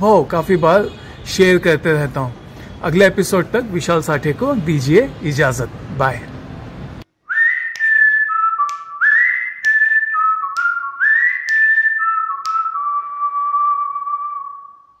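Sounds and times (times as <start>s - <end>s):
person whistling a tune: 7.3s - 15.0s
sharp clicks: 10.5s - 10.8s, 11.4s - 11.8s, 12.4s - 12.7s.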